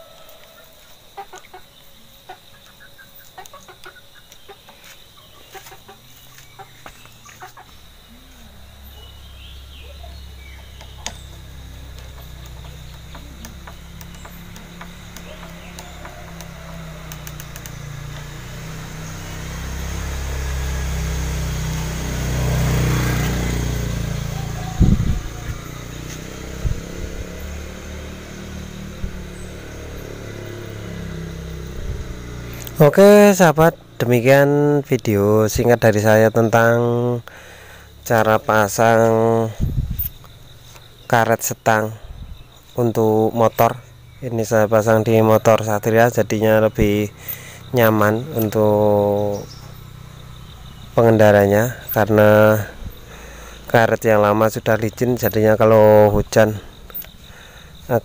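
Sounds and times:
chickens clucking: 0:00.2 - 0:09.1
low engine hum: 0:03.4 - 0:34.3, 0:36.8 - 0:41.1, 0:41.9 - 0:58.0
light clicks: 0:10.8 - 0:18.4.

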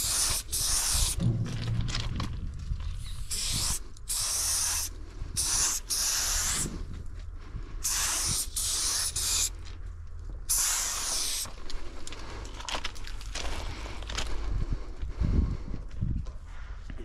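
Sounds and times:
spray paint can hissing: 0:00.0 - 0:01.2, 0:03.0 - 0:06.8, 0:07.8 - 0:09.6, 0:10.5 - 0:11.5.

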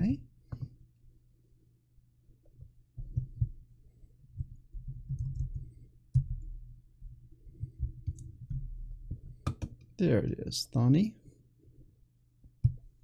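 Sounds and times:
computer keyboard typing: 0:04.8 - 0:06.4.

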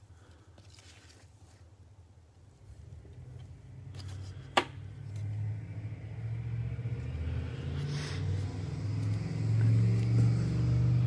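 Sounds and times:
trading card rustle: 0:00.2 - 0:01.8
low background rumble: 0:01.9 - 0:11.0.

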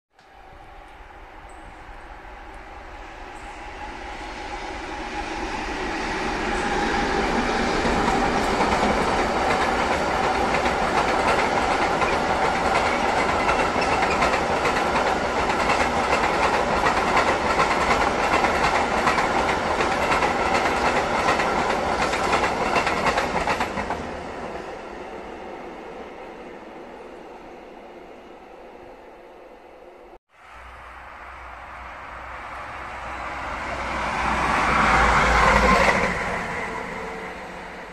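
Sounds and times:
train wheels clickety-clack: 0:04.9 - 0:24.6, 0:34.3 - 0:36.7.

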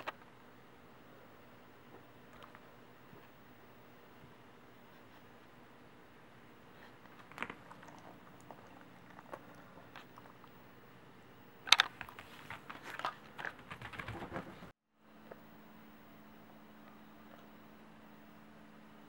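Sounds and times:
dog chewing jerky crunching: 0:06.9 - 0:10.6.

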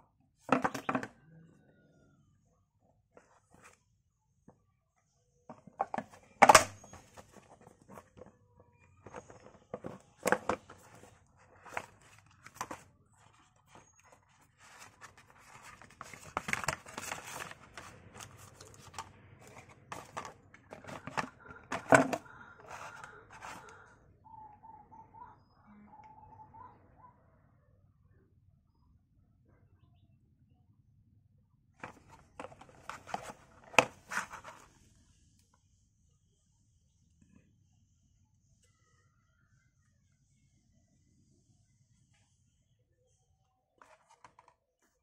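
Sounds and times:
cardboard rustling: 0:09.0 - 0:23.8, 0:31.8 - 0:34.8
cardboard knocks and clicks: 0:14.7 - 0:23.6.

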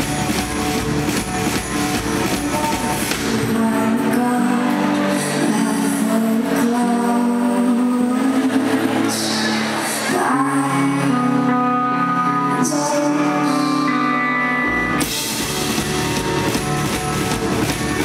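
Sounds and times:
low bass: 0:00.0 - 0:12.6, 0:13.3 - 0:18.0
electric guitar: 0:00.0 - 0:18.0
woman singing: 0:02.1 - 0:14.3.

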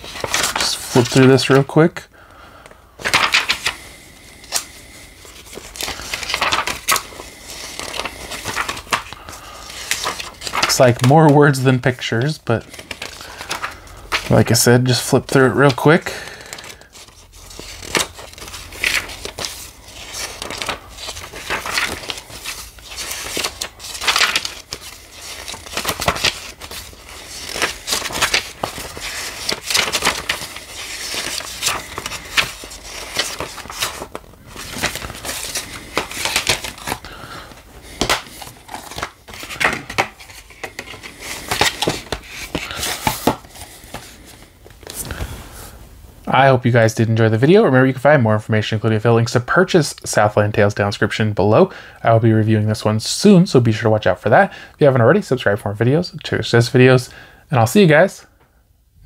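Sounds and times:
booklet pages rustling: 0:00.0 - 0:02.0, 0:03.0 - 0:45.9.

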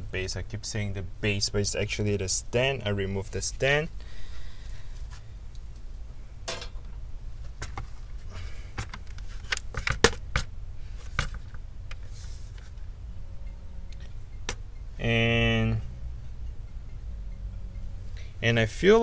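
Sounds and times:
low steady hum: 0:00.0 - 0:19.0
clicks and knocks of handled parts: 0:08.7 - 0:12.9.

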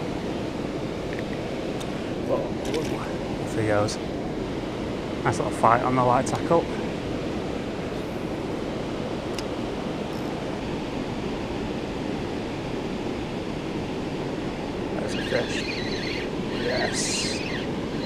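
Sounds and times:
river water flowing: 0:06.8 - 0:18.0.

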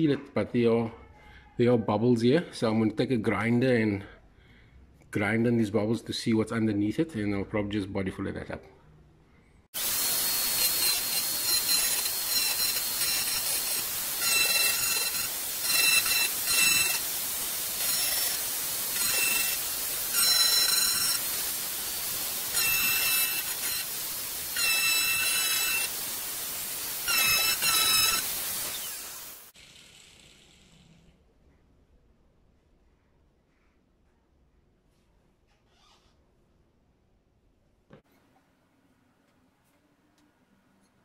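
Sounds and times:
electric grinder grinding metal: 0:09.8 - 0:30.6
high grinder whine: 0:09.8 - 0:30.6.

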